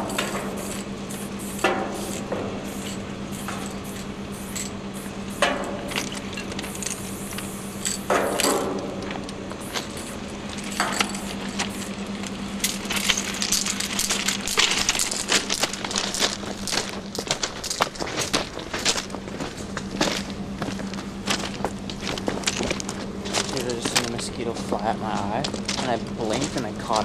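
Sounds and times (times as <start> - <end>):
spray paint can hissing: 0.0 - 6.0, 6.6 - 8.1
low hum: 0.0 - 27.0
metallic clinks and rattles: 2.0 - 4.8, 5.6 - 12.0, 12.6 - 19.2.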